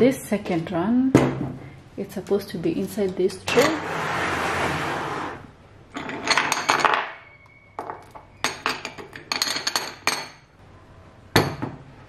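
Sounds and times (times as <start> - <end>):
bottles clinking in a tray: 6.0 - 10.5.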